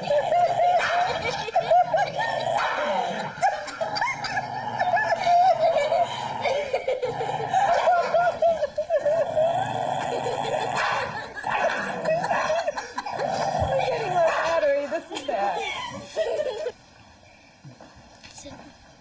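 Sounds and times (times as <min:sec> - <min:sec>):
dog growling and snarling: 0:00.0 - 0:08.4, 0:09.0 - 0:14.9.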